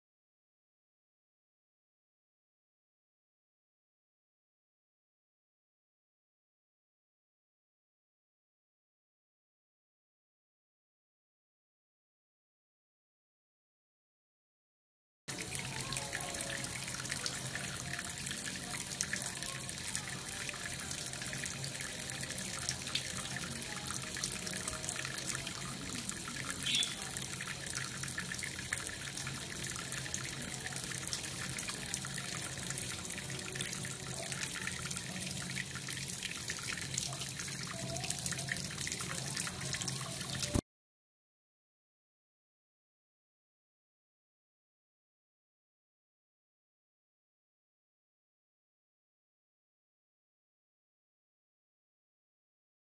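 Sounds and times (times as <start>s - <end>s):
tap water splashing into sink: 15.3s - 40.6s.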